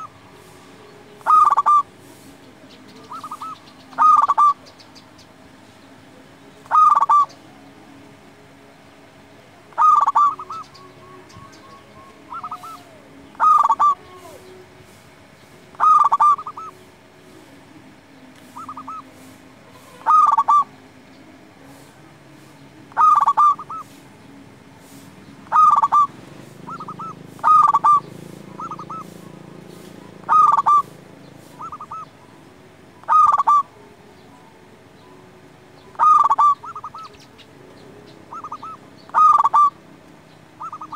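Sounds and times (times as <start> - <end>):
dove cooing: 0.0 - 2.2, 2.8 - 4.8, 6.6 - 7.6, 9.7 - 14.6, 15.7 - 16.8, 18.4 - 20.9, 22.9 - 24.0, 24.8 - 32.3, 33.0 - 34.6, 35.8 - 37.4, 38.0 - 39.9, 40.5 - 40.9.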